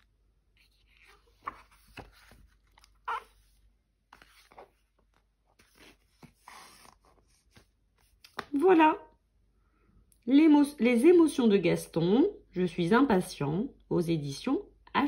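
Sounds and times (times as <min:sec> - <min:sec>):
book rustling and rubbing: 0:00.4 - 0:08.5.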